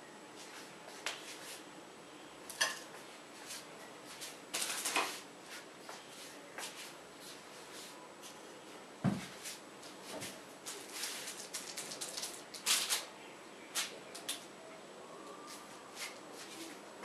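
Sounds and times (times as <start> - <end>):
dull thump: 9.0 - 9.3.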